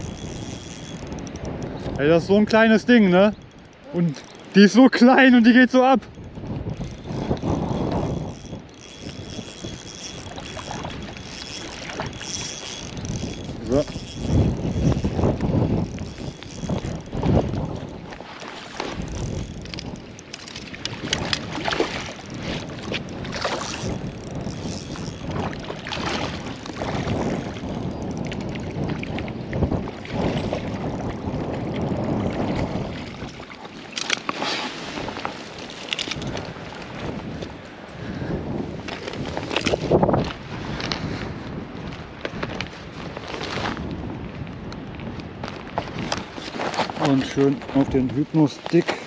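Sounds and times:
handling clicks and rustles: 0.0s - 28.6s, 33.8s - 37.6s, 38.8s - 41.1s, 45.2s - 49.0s
wind buffeting microphone: 0.0s - 49.0s.

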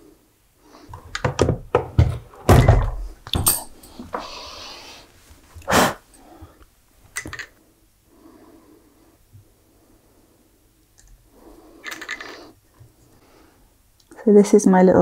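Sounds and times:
dull knocks and thumps: 0.9s - 3.5s.

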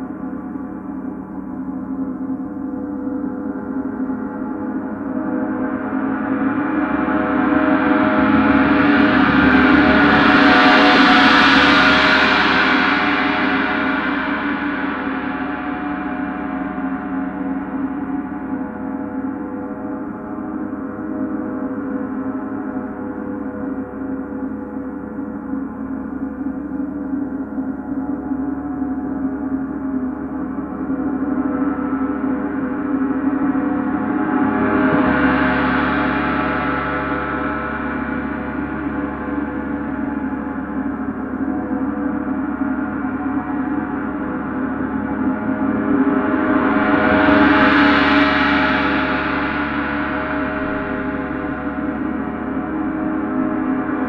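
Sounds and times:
gong ringing: 4.9s - 18.4s, 32.9s - 54.0s.

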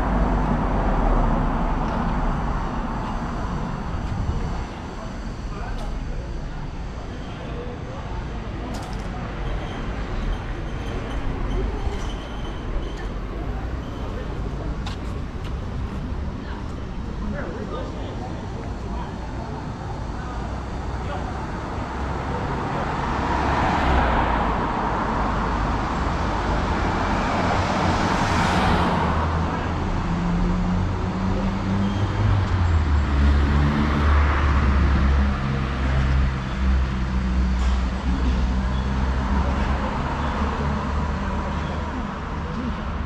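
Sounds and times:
cars passing: 0.0s - 7.7s, 21.0s - 43.0s.

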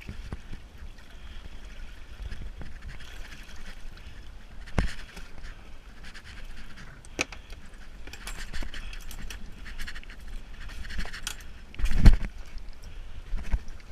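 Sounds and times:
gear clicks scrapes and clinks: 8.0s - 11.5s.

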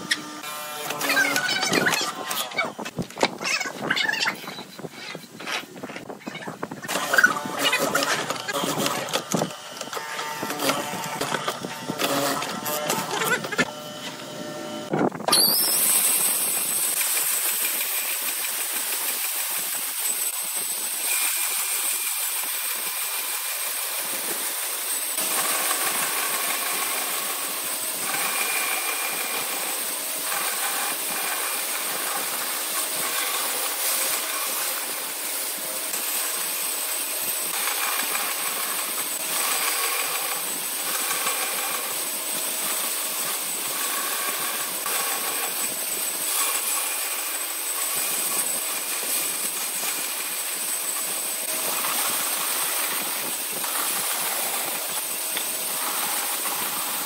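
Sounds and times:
bandsaw cutting wood: 0.0s - 3.9s, 6.8s - 57.0s
mortiser working: 0.0s - 57.0s.

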